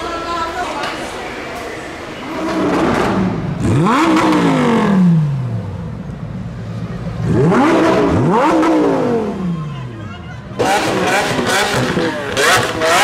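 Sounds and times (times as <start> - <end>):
car engine revving hard: 2.3 - 5.9, 7.2 - 9.5, 10.6 - 13.0.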